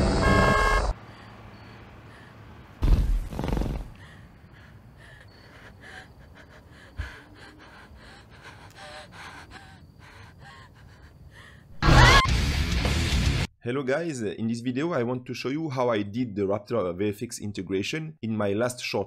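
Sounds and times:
dinosaur snort: 2.8s - 4.0s.

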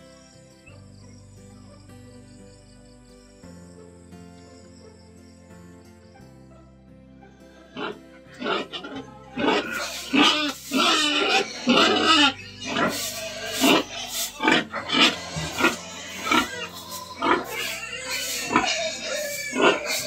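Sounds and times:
pigs squealing and grunting: 7.6s - 20.0s.

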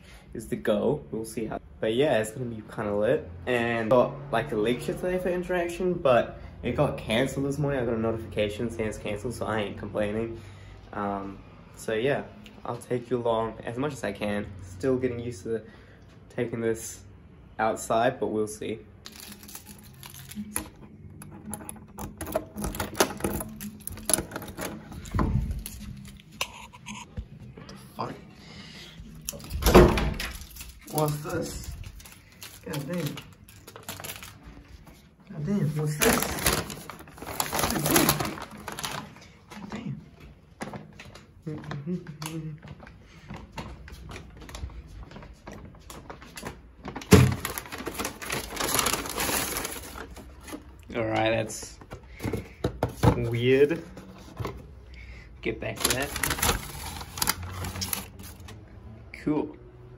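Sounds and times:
paper bag crinkling: 19.0s - 20.8s, 29.3s - 34.8s, 35.6s - 39.4s, 47.0s - 50.8s, 55.6s - 58.6s
paper bag rustling: 19.0s - 20.8s, 29.2s - 35.0s, 35.6s - 39.4s, 46.9s - 51.2s, 55.6s - 58.6s.

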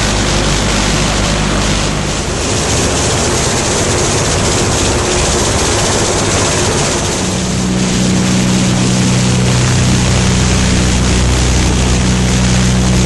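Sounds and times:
aircraft engines droning: 0.0s - 13.0s
dense rushing noise: 0.0s - 13.0s.

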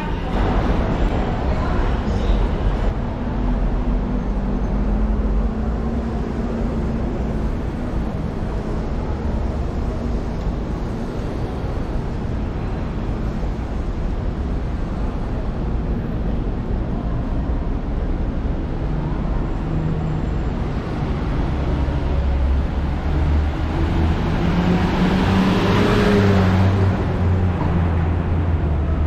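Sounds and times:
rumble of traffic: 0.0s - 29.0s.

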